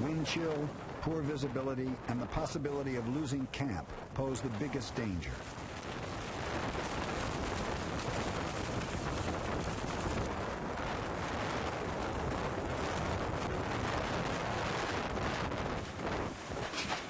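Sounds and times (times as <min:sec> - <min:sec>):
gale wind rushing: 0:00.0 - 0:17.0
tent fabric shaking: 0:11.9 - 0:17.0.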